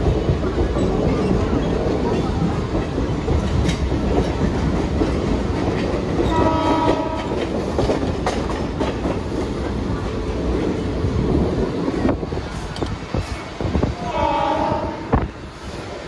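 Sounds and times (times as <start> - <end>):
electric train rumble and wheel clatter: 0.0 - 16.0
train horn: 6.3 - 7.4, 14.0 - 15.3.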